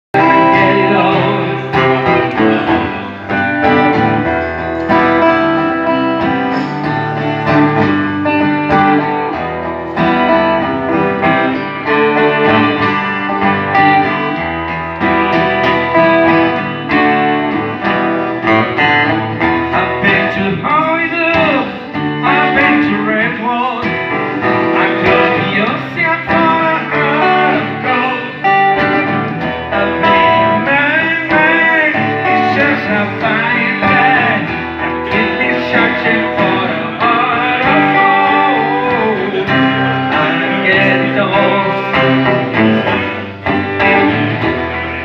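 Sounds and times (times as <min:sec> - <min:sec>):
man singing: 0:00.1 - 0:04.0, 0:18.7 - 0:44.2
acoustic guitars playing: 0:00.1 - 0:45.0.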